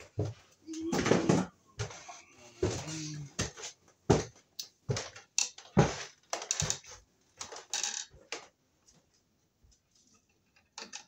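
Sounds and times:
wire strippers clicking and rustling: 0:04.5 - 0:11.0.

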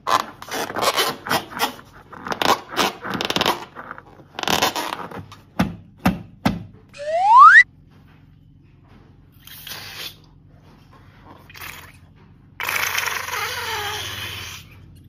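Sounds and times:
rubbery balloon scrapes: 0:00.0 - 0:05.3.

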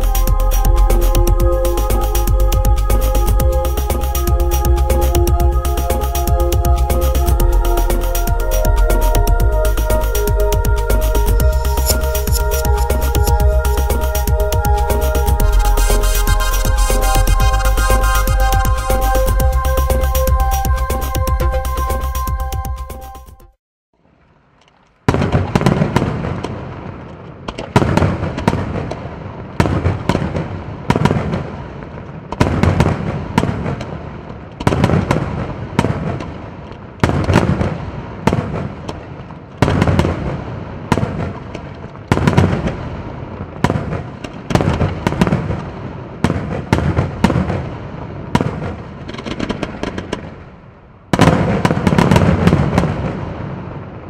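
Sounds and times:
fireworks shells bursting: 0:11.2 - 0:14.4.

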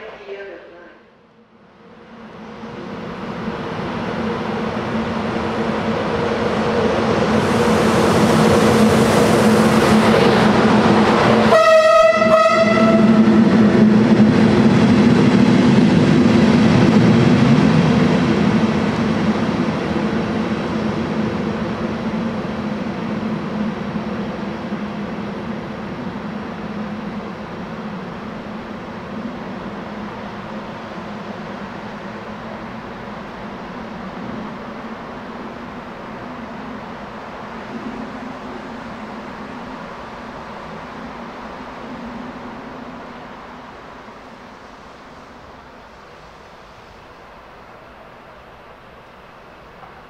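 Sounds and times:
train wheels rumbling on rail: 0:01.6 - 0:50.0
train horn blast: 0:11.4 - 0:13.4.

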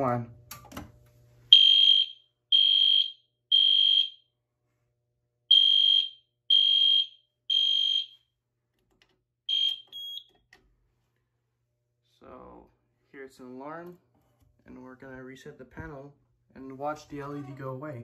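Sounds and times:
alarm beeping: 0:01.5 - 0:04.2, 0:05.5 - 0:08.2, 0:09.5 - 0:10.3
smoke detector chirp: 0:05.5 - 0:08.2, 0:09.5 - 0:10.3.

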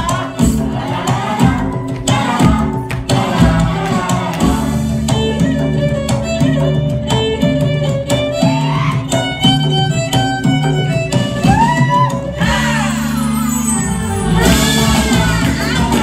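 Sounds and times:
violin melody: 0:04.8 - 0:11.5.

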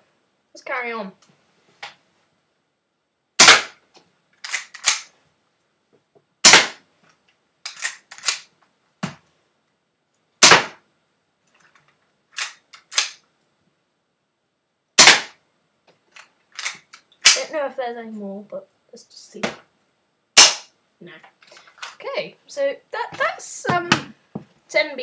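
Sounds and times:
bb gun shots: 0:03.4 - 0:03.8, 0:06.4 - 0:06.8, 0:10.4 - 0:10.8, 0:15.0 - 0:15.4, 0:20.4 - 0:20.7.

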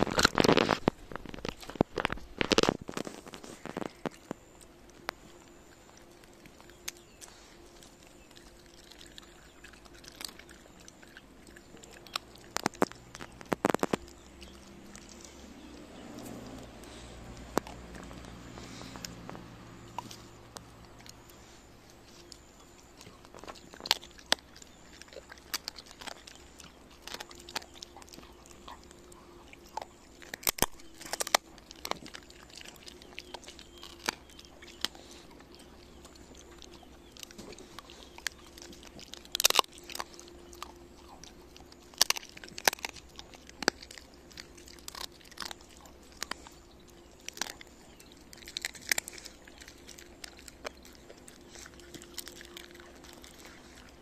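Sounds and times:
dog crunching bones: 0:00.0 - 0:54.0.

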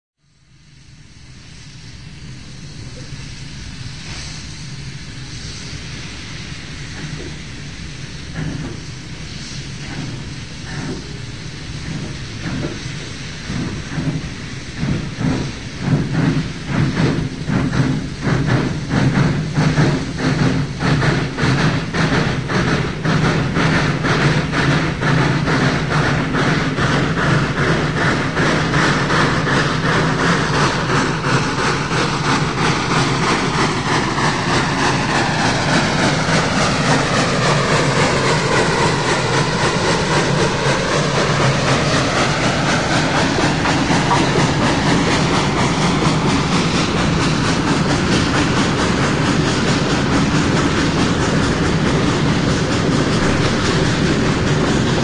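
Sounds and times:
steam locomotive exhaust beats: 0:00.3 - 0:55.0
train cars rumbling: 0:00.6 - 0:55.0.

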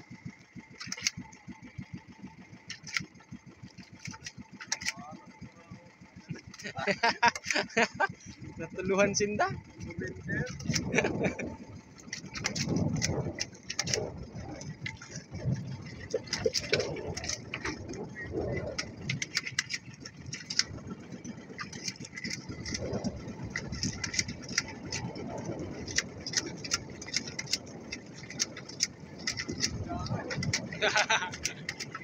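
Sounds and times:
water lapping against boat: 0:00.0 - 0:32.0
sharp clicks and knocks: 0:00.7 - 0:01.4, 0:02.6 - 0:05.2, 0:06.3 - 0:07.6, 0:09.8 - 0:11.0, 0:12.0 - 0:20.9, 0:21.5 - 0:32.0.

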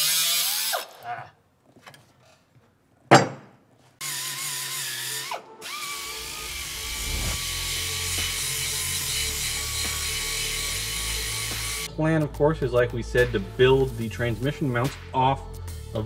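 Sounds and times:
power tool whining: 0:04.0 - 0:11.9.

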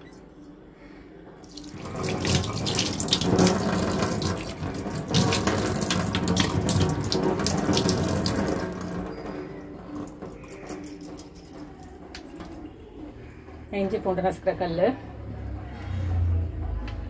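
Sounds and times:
tap running into steel sink: 0:01.6 - 0:09.4.

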